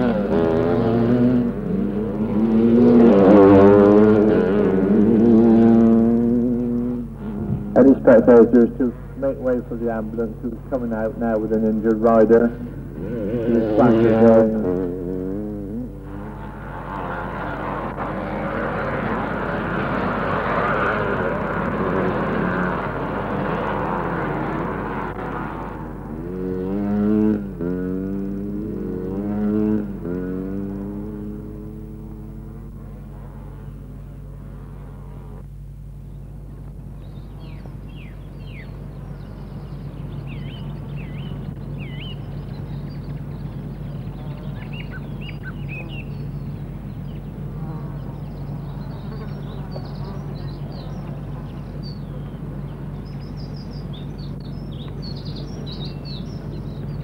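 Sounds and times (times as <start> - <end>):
steady low hum: 0.0 - 57.0
birds chirping and trilling: 36.9 - 57.0.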